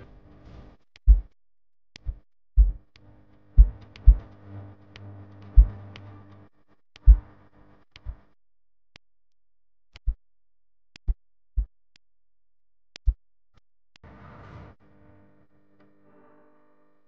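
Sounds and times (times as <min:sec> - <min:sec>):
sharp tick: 0:10.9 - 0:11.2, 0:12.9 - 0:13.2.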